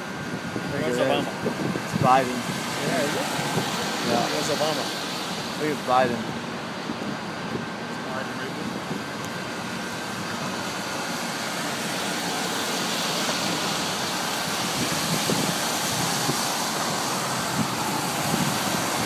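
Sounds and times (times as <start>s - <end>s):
car engines: 0.0s - 19.0s
tyres hissing on wet pavement: 0.0s - 19.0s.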